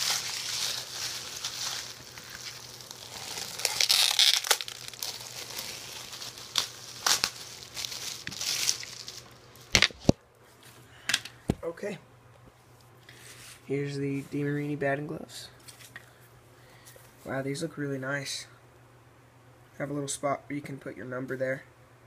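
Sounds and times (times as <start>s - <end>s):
packaging tearing and rustling: 0.0s - 10.2s.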